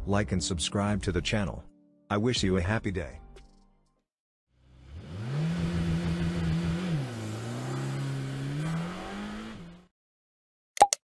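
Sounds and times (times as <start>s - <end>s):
car engine revving: 4.6s - 9.9s.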